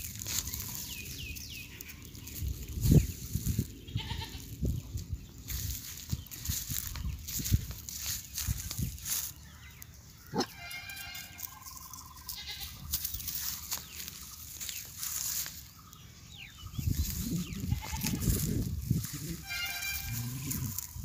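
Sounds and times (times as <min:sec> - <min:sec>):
wavering animal cry: 0:19.1 - 0:21.0.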